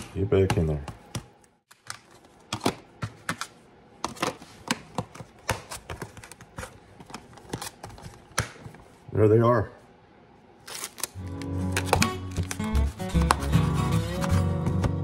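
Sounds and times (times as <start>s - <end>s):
plastic lids snapping onto tubs: 0.0s - 8.7s.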